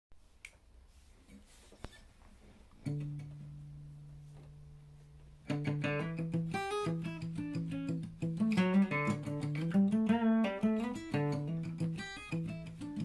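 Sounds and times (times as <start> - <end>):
acoustic guitar notes plucked: 2.8 - 13.0.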